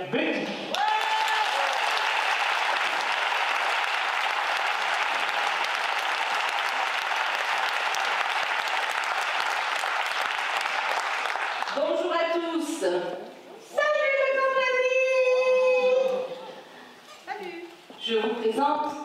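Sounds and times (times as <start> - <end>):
audience applauding: 0.7 - 11.8.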